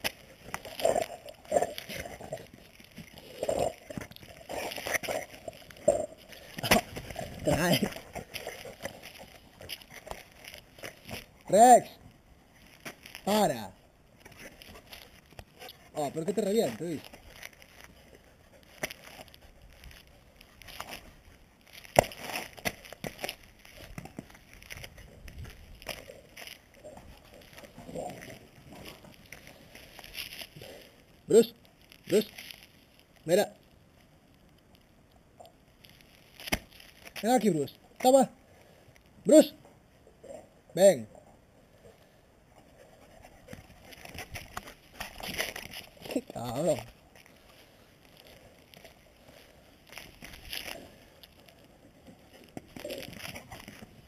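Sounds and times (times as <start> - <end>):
paws scraping and knocking: 42.5 - 46.1.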